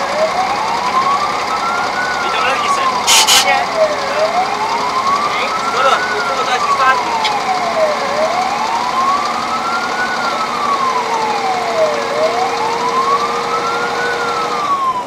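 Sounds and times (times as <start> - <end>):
fire engine siren wailing: 0.0 - 15.0.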